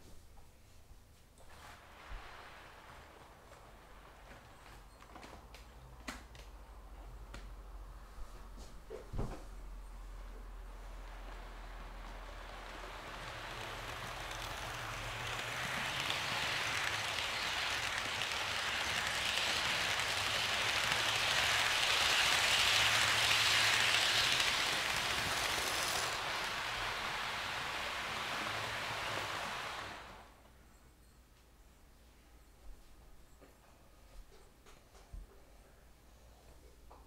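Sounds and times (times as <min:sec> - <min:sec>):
model train wheels rattling on rails: 0:10.4 - 0:30.3.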